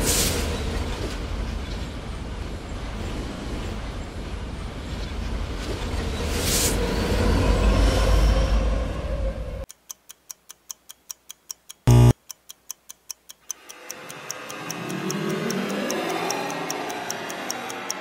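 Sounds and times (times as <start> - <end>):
train rumbling past: 0.0 - 9.6
clock ticking: 9.7 - 18.0
loud buzz: 11.9 - 12.2.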